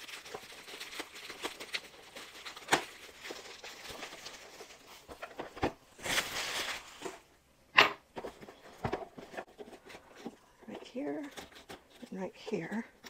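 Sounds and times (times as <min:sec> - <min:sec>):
bubble wrap crinkling: 0:00.0 - 0:07.3.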